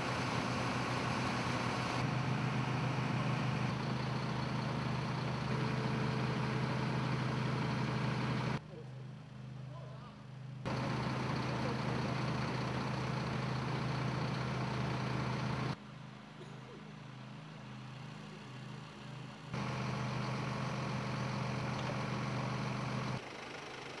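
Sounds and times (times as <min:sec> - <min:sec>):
diesel engine humming: 0:00.0 - 0:09.7, 0:10.3 - 0:24.0
quieter engine drone wavering: 0:00.0 - 0:24.0.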